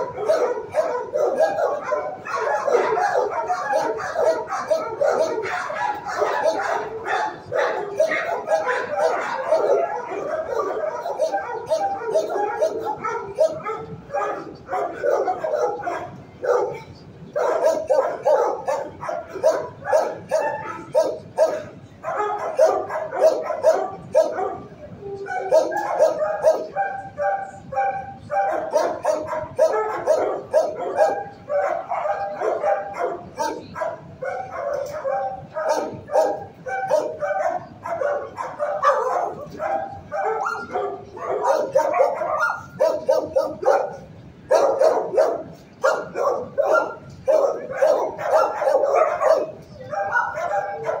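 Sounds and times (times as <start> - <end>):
dogs barking and yipping: 0.0 - 51.0.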